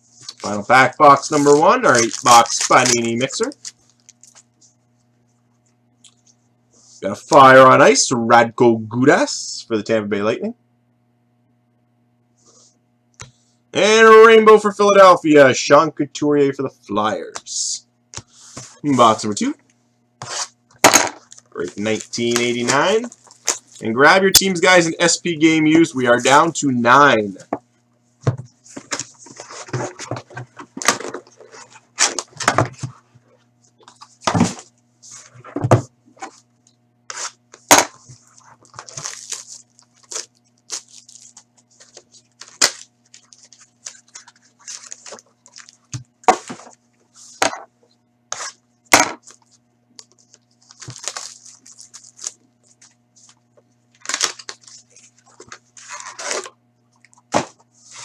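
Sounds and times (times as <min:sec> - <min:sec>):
cardboard rustling and tearing: 0:00.3 - 0:04.4, 0:38.1 - 0:46.8, 0:50.3 - 0:53.4, 0:54.0 - 0:56.6
taps and knocks of handled packs: 0:50.0 - 0:52.4.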